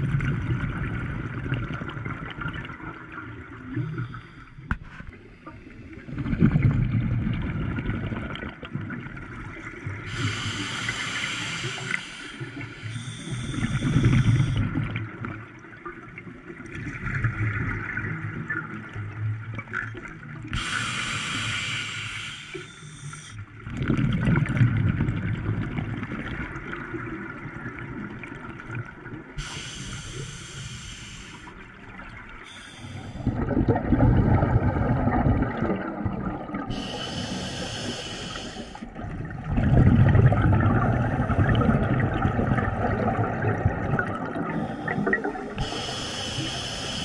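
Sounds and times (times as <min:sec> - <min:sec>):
regulator hissing inhalation: 0:10.1 - 0:14.6, 0:20.6 - 0:23.4, 0:29.4 - 0:31.6, 0:32.5 - 0:33.3, 0:36.7 - 0:38.9, 0:44.5 - 0:47.0
bubbling exhalations: 0:32.4 - 0:47.0.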